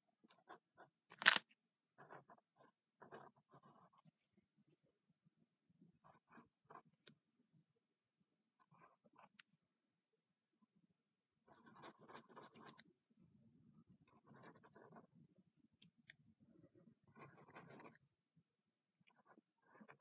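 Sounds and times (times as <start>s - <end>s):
pen scratching on paper: 0.2s - 4.3s, 6.0s - 7.2s, 8.6s - 9.7s, 11.4s - 12.9s, 14.1s - 15.2s, 16.9s - 18.1s, 19.0s - 20.0s.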